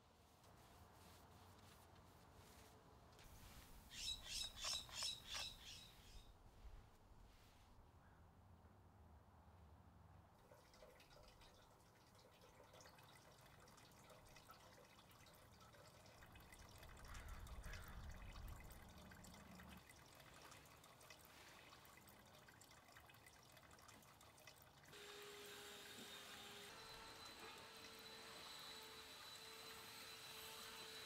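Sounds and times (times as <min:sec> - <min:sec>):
water dripping: 0:10.4 - 0:25.0.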